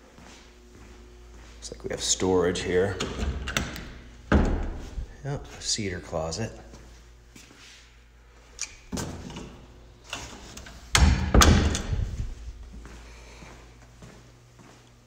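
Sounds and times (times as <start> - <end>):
door closing with double thud: 3.0 - 4.8, 11.0 - 12.2
door knocks and bumps: 4.3 - 4.8, 11.0 - 12.2.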